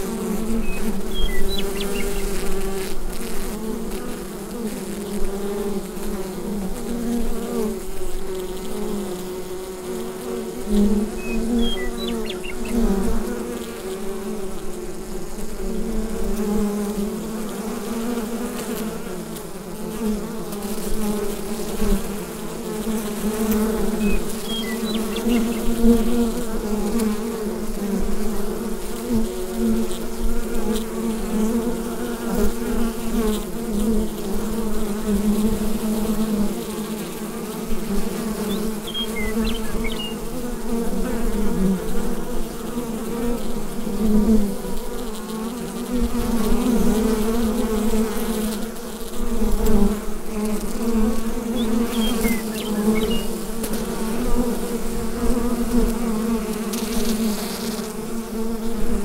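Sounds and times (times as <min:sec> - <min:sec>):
bees buzzing: 0:00.0 - 0:59.0
faint high chirps: 0:11.2 - 0:12.8.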